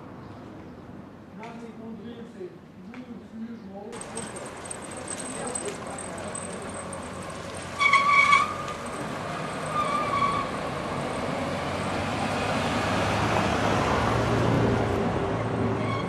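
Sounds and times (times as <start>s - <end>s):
car driving over cobblestones: 4.0s - 12.6s.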